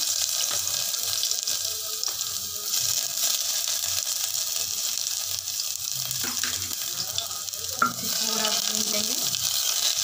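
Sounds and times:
ginger and garlic sizzling in oil: 0:00.0 - 0:10.0.

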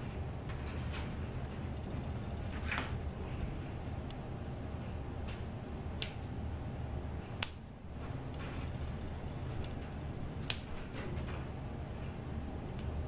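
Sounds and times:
steady low hum: 0:00.0 - 0:13.0
kitchen shears snipping mesh: 0:06.0 - 0:06.3, 0:10.4 - 0:10.9.

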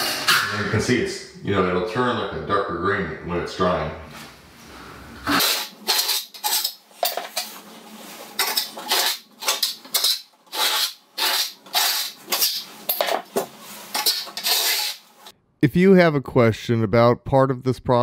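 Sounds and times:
trowel scraping board: 0:05.3 - 0:15.3.

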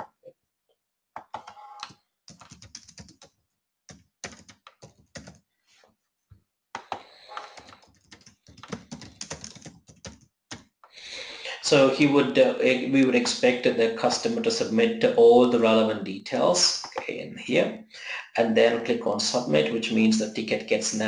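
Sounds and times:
keyboard typing: 0:01.2 - 0:05.4, 0:06.8 - 0:10.8.

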